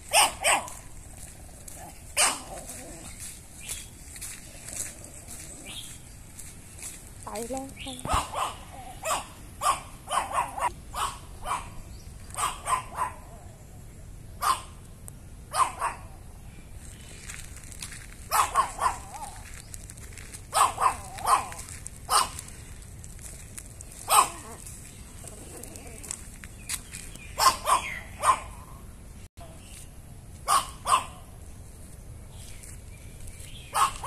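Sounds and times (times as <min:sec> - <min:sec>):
small dog barking: 0:00.0 - 0:00.9, 0:01.7 - 0:03.2, 0:08.0 - 0:13.4, 0:14.4 - 0:14.8, 0:15.5 - 0:16.2, 0:18.3 - 0:19.4, 0:20.5 - 0:22.4, 0:24.0 - 0:26.1, 0:27.4 - 0:28.7, 0:30.4 - 0:31.3, 0:33.7 - 0:34.0.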